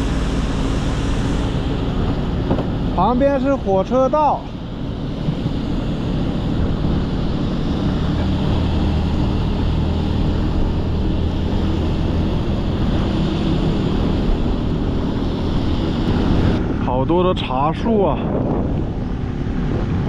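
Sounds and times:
tyres hissing on wet road: 0.0s - 4.6s
wind buffeting microphone: 4.5s - 20.0s.

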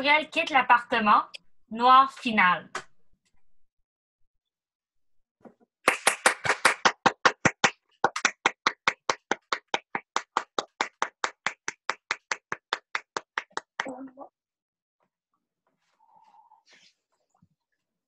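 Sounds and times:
person clapping: 5.9s - 14.0s.

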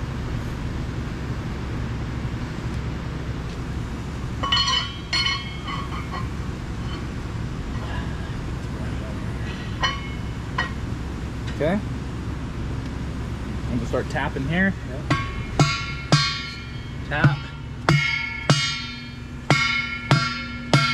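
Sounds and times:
steady low rumble: 0.0s - 20.9s
metallic clinks of bearing race: 4.4s - 7.1s, 9.4s - 10.8s.

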